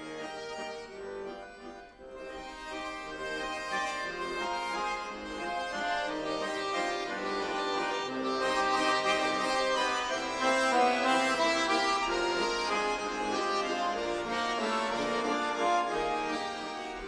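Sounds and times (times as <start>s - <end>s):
accordions playing folk tune: 0.0s - 17.0s.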